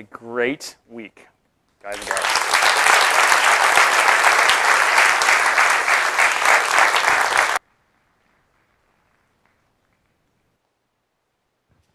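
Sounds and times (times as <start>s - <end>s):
audience applauding: 1.9s - 7.6s.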